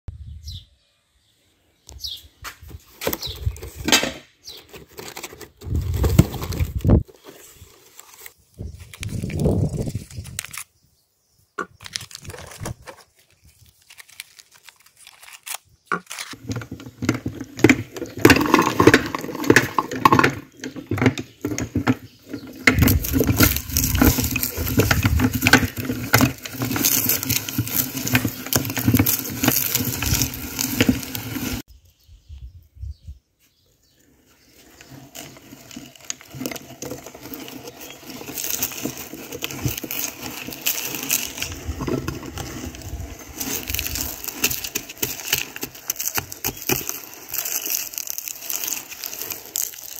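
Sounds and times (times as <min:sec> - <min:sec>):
plastic wrappers crinkling: 0:04.6 - 0:10.8, 0:11.6 - 0:31.7, 0:34.8 - 0:49.9
cones crunching in meat grinder: 0:13.4 - 0:31.7, 0:34.6 - 0:49.9.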